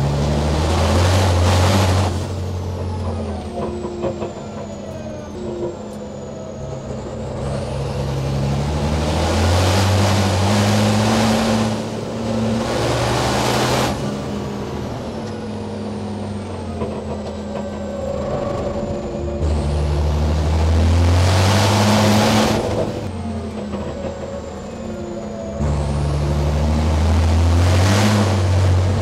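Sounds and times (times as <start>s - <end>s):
diesel truck engine under load: 0.0s - 29.0s
loud rushing noise: 8.6s - 15.0s, 18.6s - 23.1s.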